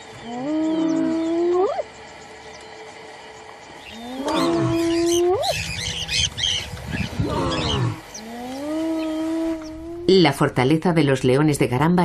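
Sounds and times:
small birds twittering: 0.0 - 9.9
lionesses calling: 0.2 - 2.6, 3.7 - 10.1.

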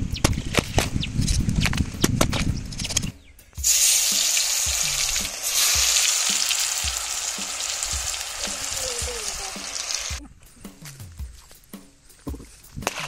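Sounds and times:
fish frying in hot oil: 3.6 - 10.2.

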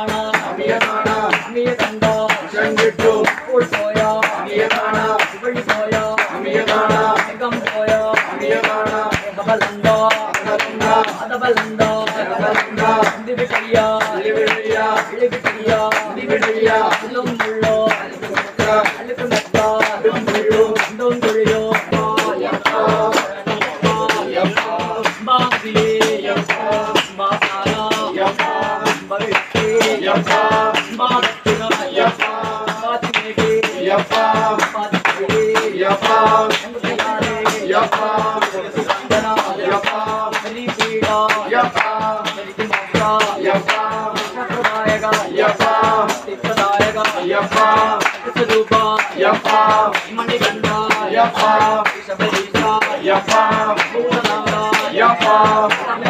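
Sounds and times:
person singing: 0.0 - 56.0
steady percussion beat: 0.0 - 56.0.

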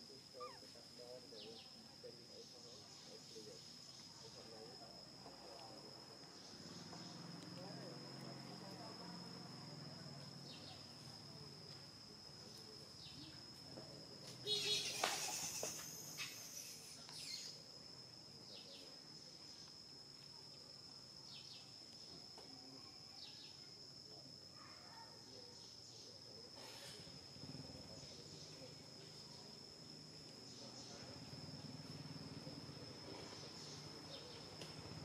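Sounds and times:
faint chirps: 0.0 - 35.0
high-pitched insect drone: 12.4 - 19.7.

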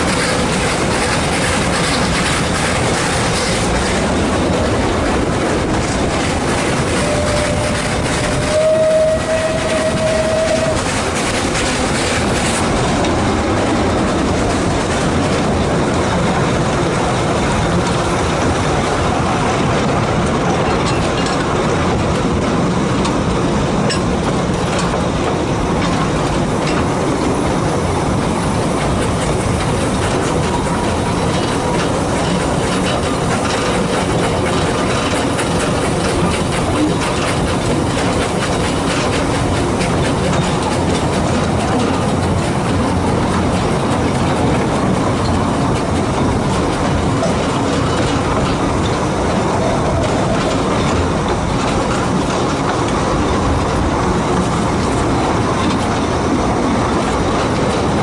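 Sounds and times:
train carriage rumble and wheel clatter: 0.0 - 58.0
locomotive whistle: 7.0 - 10.9.

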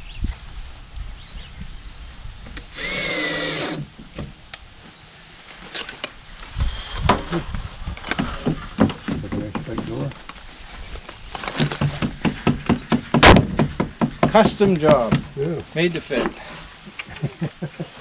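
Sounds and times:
cordless drill driving screw: 2.7 - 3.9
wooden knocks and clunks: 8.0 - 10.1, 11.5 - 15.4.

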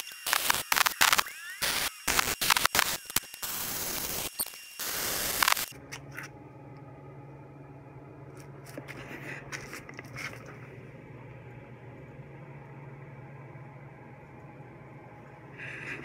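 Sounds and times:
welder arc crackling: 0.0 - 6.3
steady low hum: 4.8 - 16.0.

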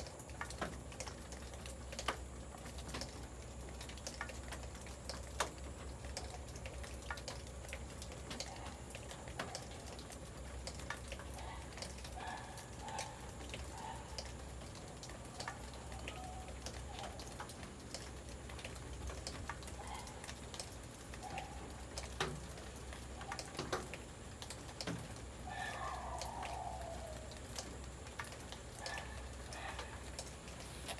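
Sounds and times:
rain drops tapping: 0.0 - 30.9.

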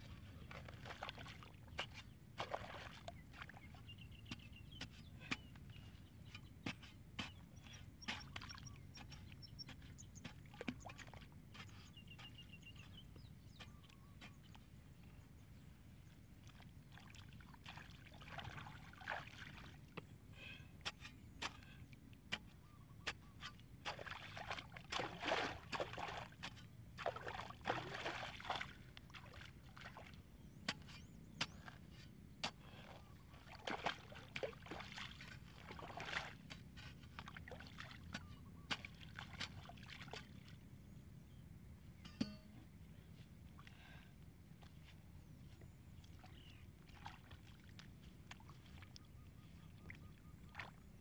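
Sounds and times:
muddy water sloshing: 0.0 - 41.3, 43.4 - 51.0
metal bar chopping into soil: 42.0 - 42.6.

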